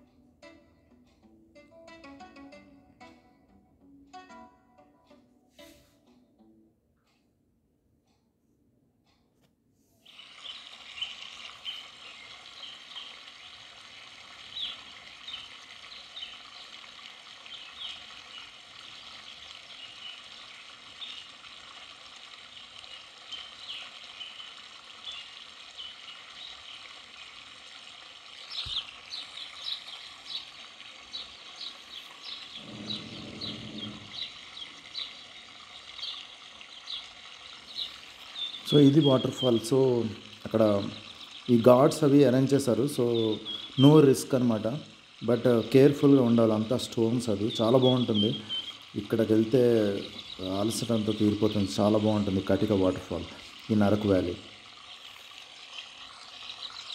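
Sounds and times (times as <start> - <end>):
waterfall rushing: 31.1 - 35.2.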